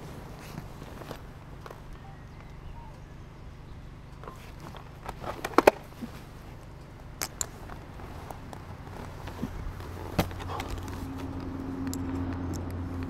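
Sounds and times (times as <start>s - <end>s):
faint low hum: 0.0s - 13.0s
clicks and knocks of gear handled: 4.1s - 13.0s.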